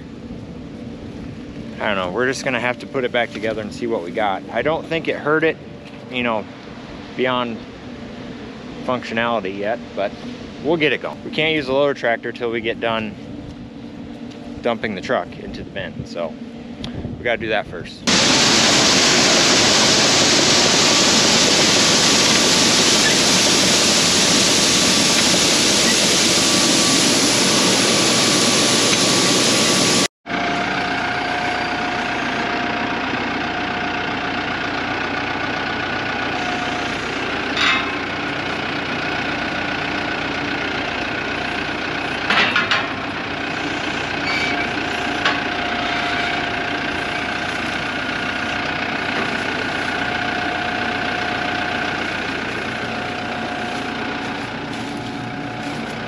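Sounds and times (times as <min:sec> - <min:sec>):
diesel engine running: 0:00.0 - 0:56.0
corn pouring into hopper: 0:18.1 - 0:27.6.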